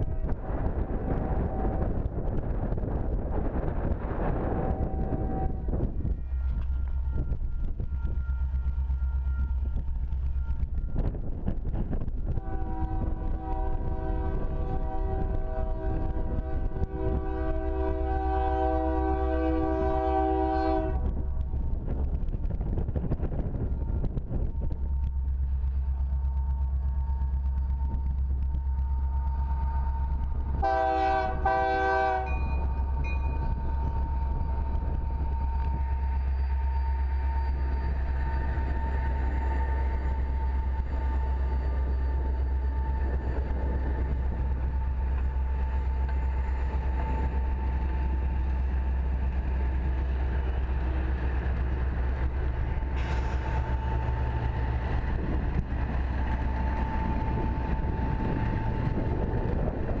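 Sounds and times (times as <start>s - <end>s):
train rumbling past: 0.0s - 60.0s
train horn blast: 4.6s - 6.0s, 12.3s - 21.4s, 30.6s - 33.2s.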